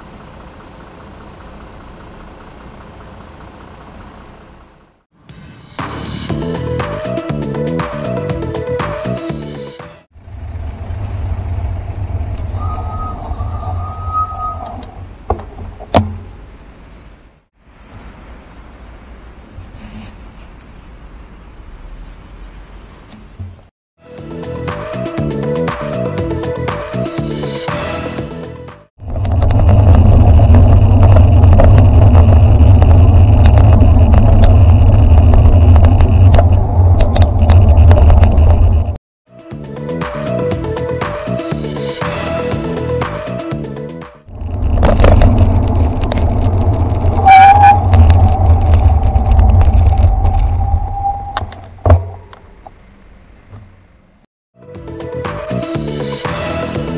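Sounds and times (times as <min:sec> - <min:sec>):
car engines rumbling: 0:00.0 - 0:05.1, 0:10.2 - 0:19.8, 0:20.5 - 0:23.7, 0:29.0 - 0:39.0, 0:44.3 - 0:54.3
bike clicks and rattles: 0:10.3 - 0:12.6, 0:29.0 - 0:39.0, 0:44.3 - 0:50.8
steady high tone: 0:12.5 - 0:14.9.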